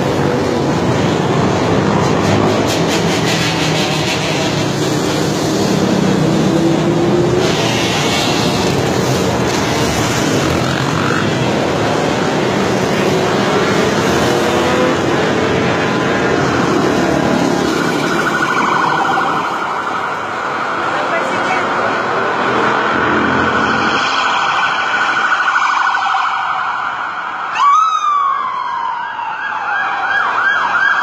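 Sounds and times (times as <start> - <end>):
quad engines revving: 0.0 - 17.9
police siren: 0.1 - 31.0.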